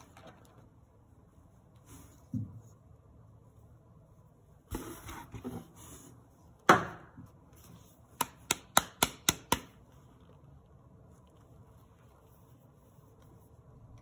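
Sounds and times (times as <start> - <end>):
rustling of products: 0.0 - 6.6.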